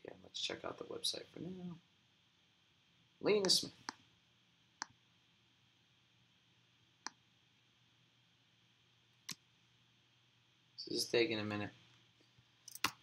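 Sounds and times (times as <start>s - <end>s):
computer mouse clicks: 12.7s - 13.0s.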